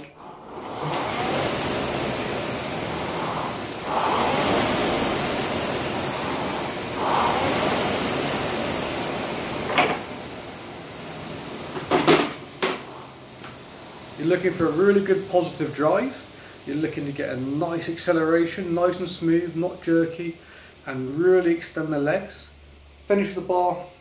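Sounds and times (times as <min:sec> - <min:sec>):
rowing machine flywheel whooshing: 0:00.0 - 0:22.0.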